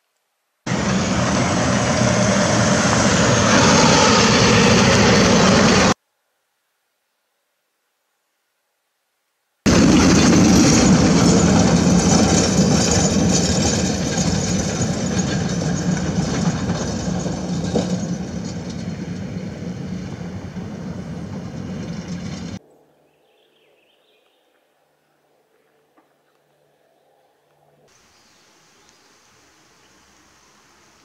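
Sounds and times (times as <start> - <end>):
truck diesel engine passing: 0.7 - 6.0, 9.7 - 22.6
tyres on gravel road: 0.7 - 6.0, 9.7 - 22.7.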